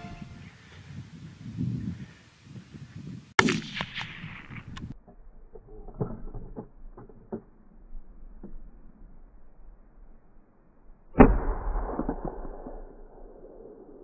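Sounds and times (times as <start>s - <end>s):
rifle shot echoing: 3.4s - 4.6s.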